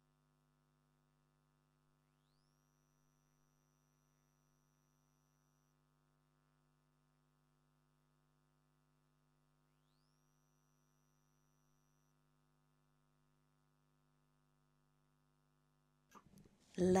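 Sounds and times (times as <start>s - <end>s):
faint high tone: 16.8s - 17.0s.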